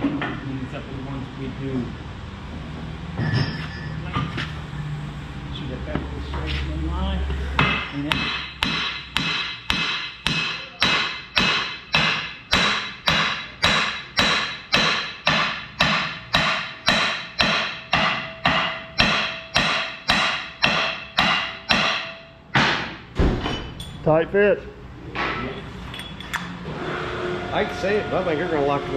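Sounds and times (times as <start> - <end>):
hammer blows ringing on metal: 7.6 - 23.0.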